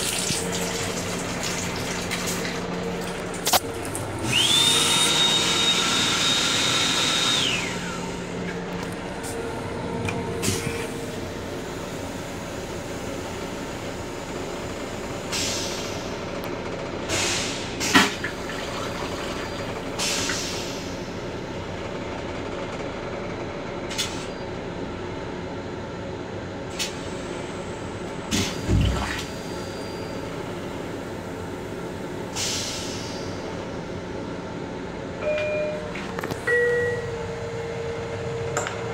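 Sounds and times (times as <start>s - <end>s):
toilet flushing: 0.0s - 8.0s, 17.2s - 20.5s, 28.3s - 29.5s
train car running noise: 0.0s - 38.9s
short beeps: 35.2s - 38.0s.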